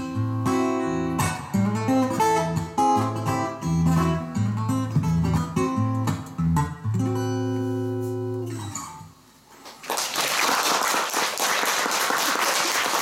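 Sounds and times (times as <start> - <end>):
audience applause: 9.7 - 13.0.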